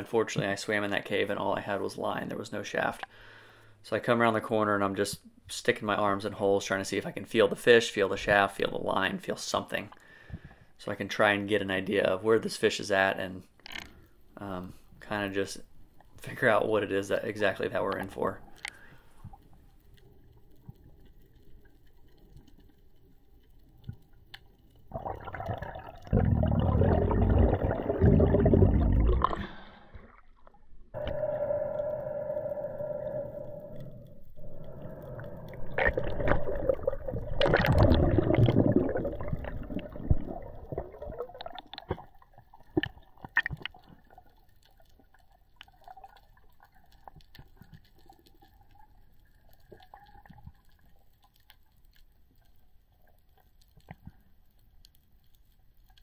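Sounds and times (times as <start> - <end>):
underwater clicks: 23.7 - 44.9.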